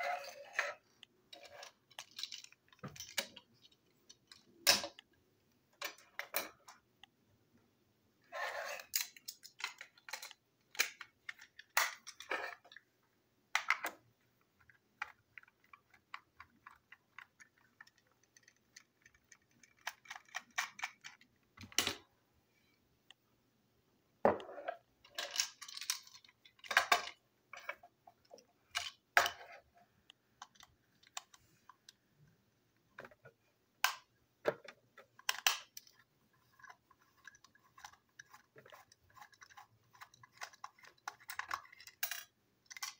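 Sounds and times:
plastic toy clicking and knocking: 8.9 - 12.7, 14.6 - 22.0, 25.1 - 29.5, 30.4 - 31.4, 33.8 - 42.9.

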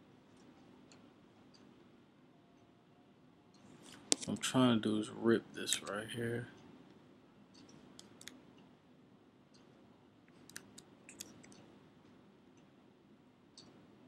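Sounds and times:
mouse and keyboard clicks: 10.3 - 11.6.

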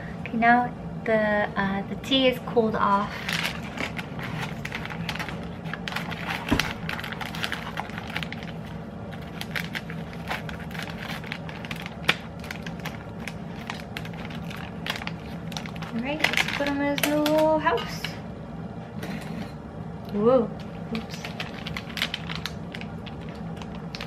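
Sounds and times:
steady low hum: 0.0 - 24.0
foil pouch crinkling: 3.1 - 17.5, 20.6 - 24.0.

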